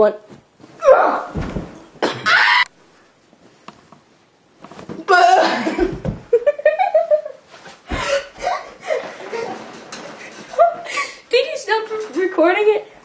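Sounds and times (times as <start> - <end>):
dull thumps: 0.3 - 2.4, 5.8 - 6.4
boys shouting and laughing: 2.2 - 2.7.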